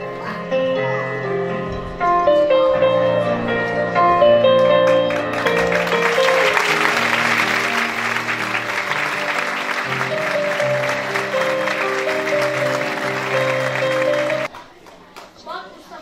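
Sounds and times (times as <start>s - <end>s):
instrumental background music: 0.0s - 14.5s
audience applauding: 4.4s - 15.4s.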